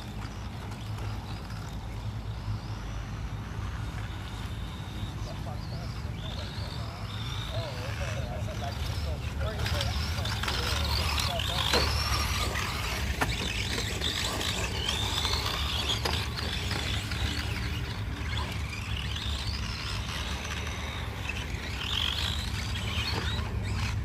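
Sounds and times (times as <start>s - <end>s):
radio-controlled car motor whining: 0.0s - 24.0s.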